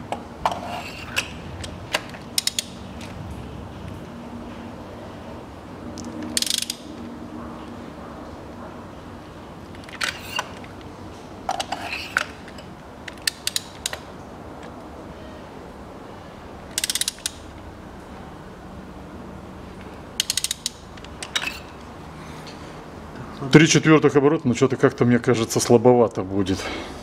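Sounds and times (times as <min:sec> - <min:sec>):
socket ratchet clicking: 0:01.1 - 0:02.8, 0:06.0 - 0:06.9, 0:13.0 - 0:14.0, 0:16.7 - 0:17.6, 0:20.2 - 0:21.8.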